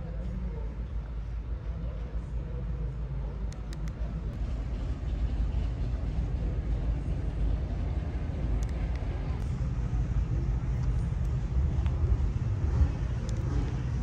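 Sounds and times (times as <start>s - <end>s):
low rumble: 0.0s - 14.0s
faint clicks: 3.5s - 4.1s.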